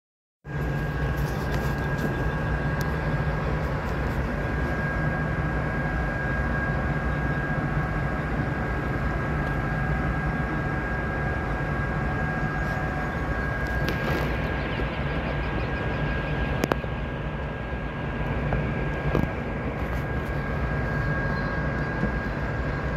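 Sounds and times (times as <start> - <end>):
high machinery whine: 0.4 - 22.9
ship machinery drone: 0.4 - 22.9.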